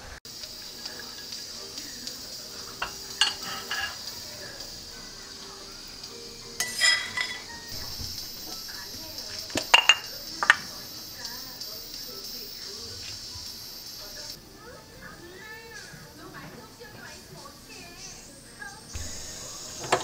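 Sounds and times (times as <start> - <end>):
ceramic bowl and utensils clinking: 2.6 - 4.3, 6.6 - 10.7.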